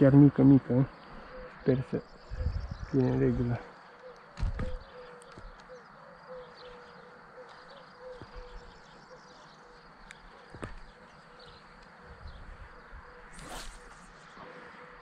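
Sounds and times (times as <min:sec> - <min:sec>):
fishing rod whoosh: 0:13.3 - 0:14.2.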